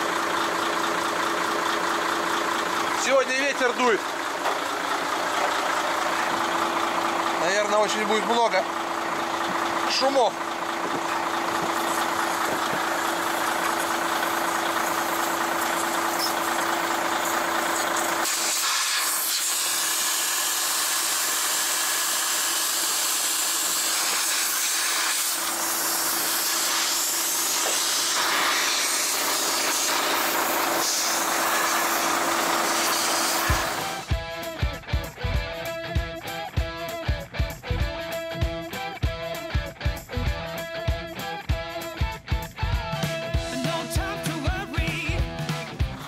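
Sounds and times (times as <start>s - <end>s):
air hissing from tyre valve: 11.8s - 34.0s.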